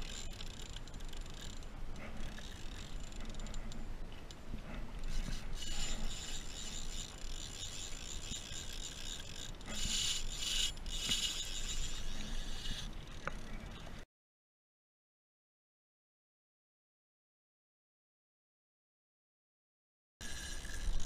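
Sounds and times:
fishing reel drag rasping: 0.0 - 3.9, 5.0 - 13.8, 20.2 - 21.0.

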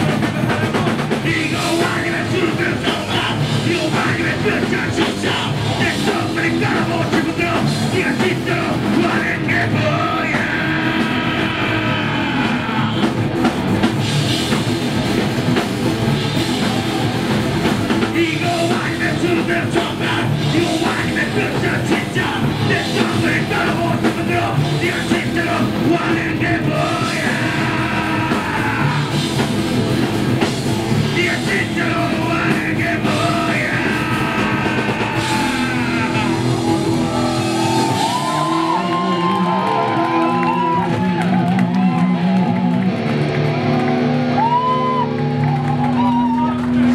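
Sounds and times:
person singing: 0.0 - 13.2, 18.0 - 29.2, 31.0 - 41.0
live heavy rock band: 0.0 - 46.9.

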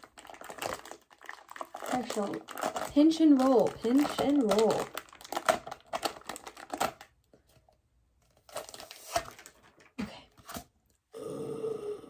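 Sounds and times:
plastic wrap crinkling: 0.0 - 7.6, 8.2 - 9.9.

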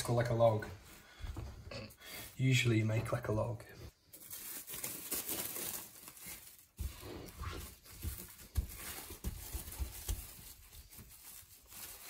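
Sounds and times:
cling film crinkling: 4.1 - 12.0.

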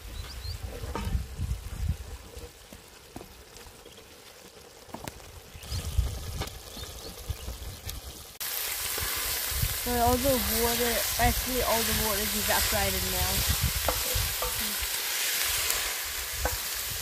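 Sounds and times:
sauce sizzling and bubbling: 1.3 - 17.0
wooden spoon scraping a pot: 13.4 - 16.8.

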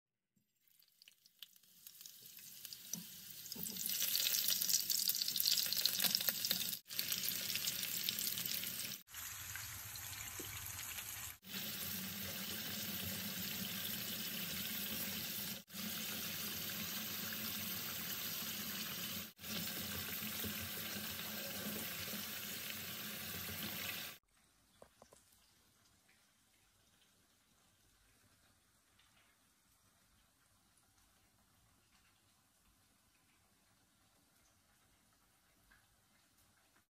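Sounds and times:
potato slices sizzling in oil: 0.5 - 24.2.

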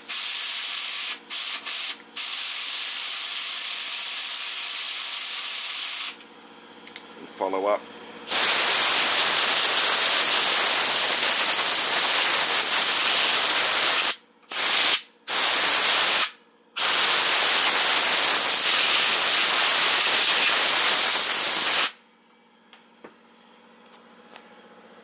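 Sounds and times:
compressed air hissing: 0.0 - 6.2, 8.3 - 22.0.

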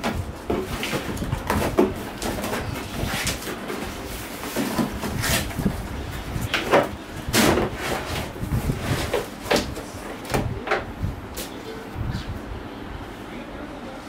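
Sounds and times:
cardboard scraping and rustling: 0.0 - 9.9.

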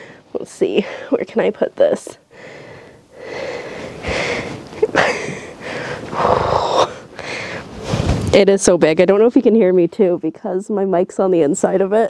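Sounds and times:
fabric rubbing against microphone: 7.6 - 8.6.

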